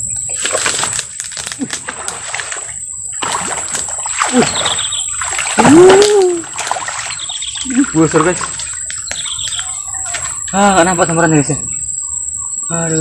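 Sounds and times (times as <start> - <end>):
water splashing: 0.3 - 11.0
person exclaiming: 5.6 - 6.5.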